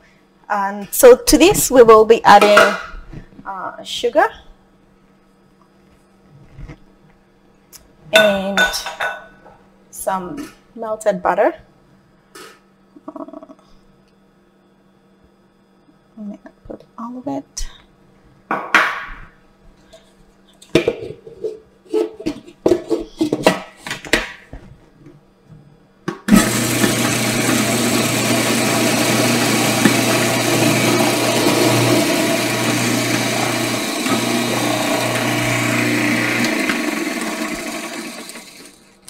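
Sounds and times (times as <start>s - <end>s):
food processor motor running: 26.3s - 38.9s.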